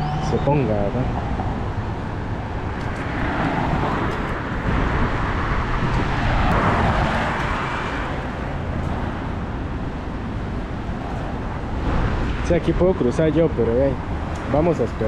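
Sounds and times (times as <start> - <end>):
cars passing: 0.0 - 15.0.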